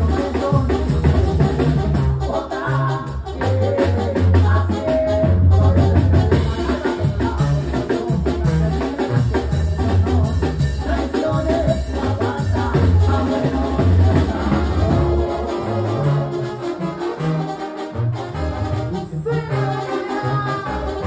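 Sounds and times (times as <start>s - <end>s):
drums keeping a steady beat: 0.0s - 15.6s
person singing: 0.0s - 16.8s, 18.9s - 21.0s
tuba bass line: 0.0s - 21.0s.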